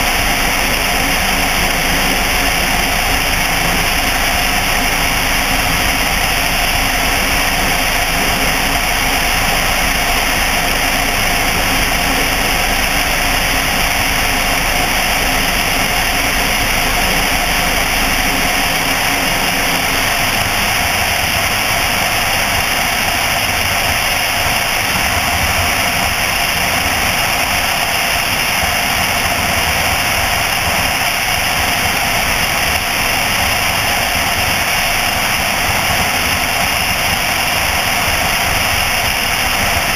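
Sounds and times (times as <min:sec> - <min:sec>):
airflow rush: 0:00.0 - 0:39.9.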